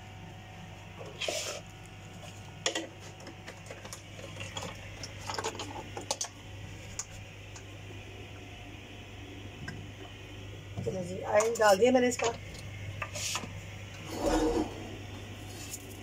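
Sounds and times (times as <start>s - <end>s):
low hum: 13.6s - 15.8s.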